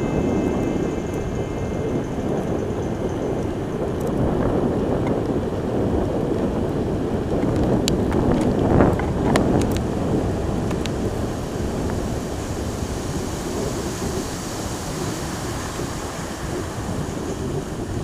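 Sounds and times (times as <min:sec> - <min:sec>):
steady low noise: 0:00.0 - 0:06.2.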